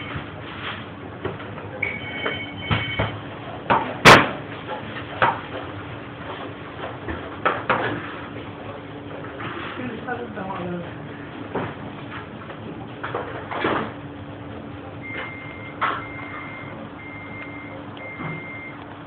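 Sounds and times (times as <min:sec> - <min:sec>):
steady hum: 0:00.0 - 0:19.0
brief ringing tone: 0:01.8 - 0:03.2.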